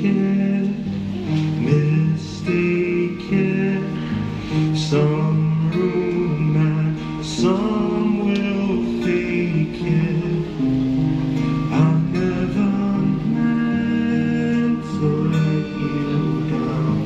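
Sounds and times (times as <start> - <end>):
guitar: 0.0 - 17.0
person singing: 0.0 - 17.0.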